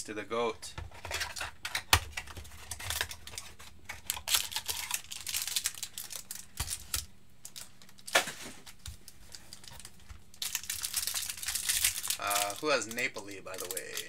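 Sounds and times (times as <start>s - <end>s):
foil packs crinkling: 2.2s - 14.0s.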